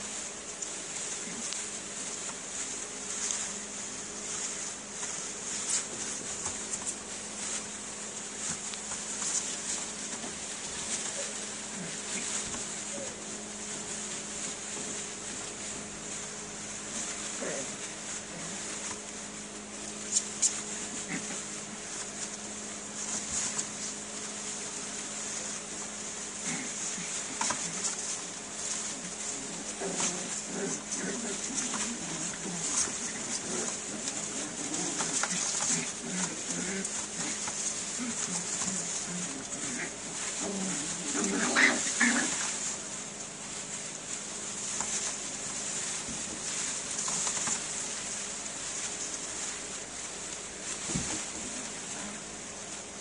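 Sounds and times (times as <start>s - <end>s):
steady low hum: 0.0s - 53.0s
puppies whimpering and squeaking: 12.1s - 13.2s.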